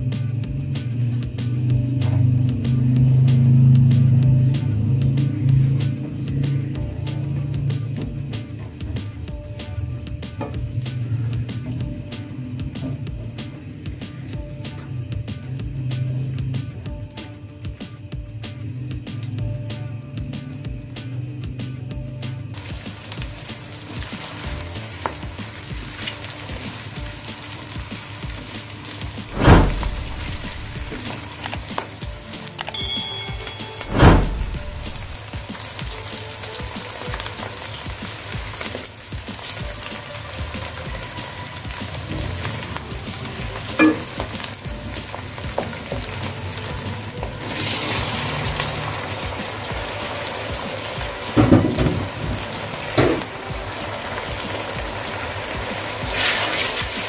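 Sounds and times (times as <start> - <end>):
onions sizzling in oil: 0.0 - 57.0
loud knocks: 29.3 - 31.0.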